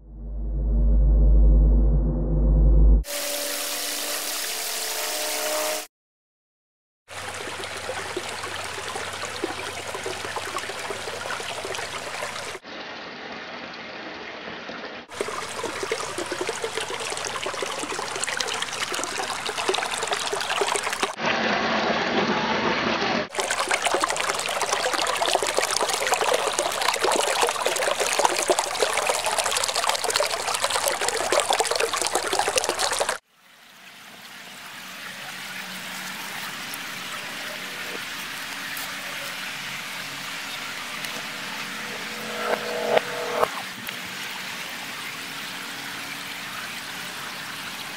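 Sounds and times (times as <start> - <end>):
running trickling water: 7.1 - 12.6, 15.1 - 21.2, 23.3 - 42.0.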